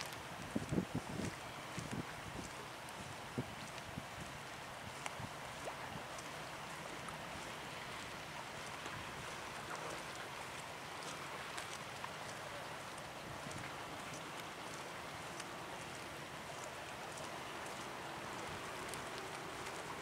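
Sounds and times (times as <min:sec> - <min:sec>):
wind over microphone: 0:00.0 - 0:06.2
water lapping: 0:00.0 - 0:20.0
faint ticks: 0:05.0 - 0:07.6, 0:09.6 - 0:20.0.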